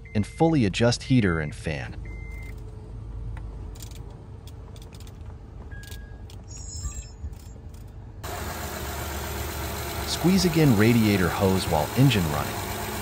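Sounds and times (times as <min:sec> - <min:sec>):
car engine idling: 0:07.8 - 0:13.0.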